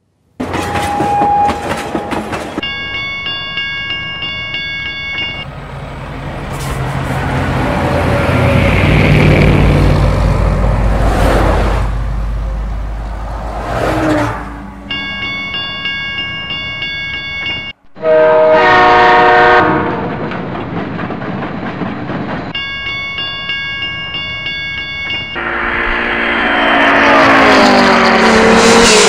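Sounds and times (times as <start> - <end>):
level-crossing warning bell: 0.6 - 5.5, 14.9 - 17.8, 22.5 - 25.9
lorry diesel engine passing: 4.9 - 15.9, 25.4 - 29.0.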